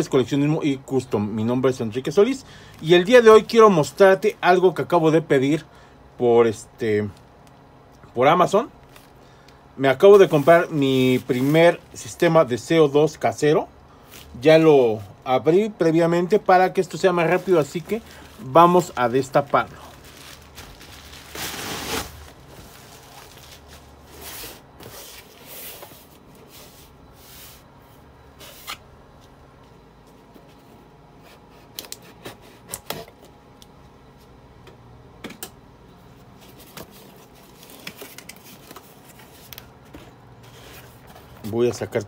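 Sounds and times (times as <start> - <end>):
plastic mailer bag crinkling: 10.0 - 12.4, 16.2 - 24.8.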